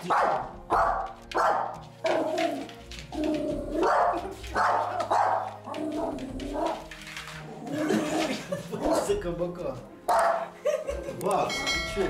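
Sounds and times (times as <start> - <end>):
puppy barking: 0.0 - 2.7, 3.4 - 6.9, 10.1 - 10.5.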